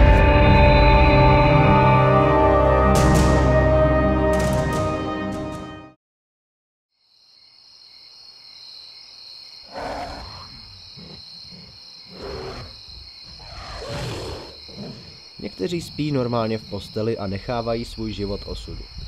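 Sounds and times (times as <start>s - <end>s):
crickets chirring: 7.0s - 19.0s.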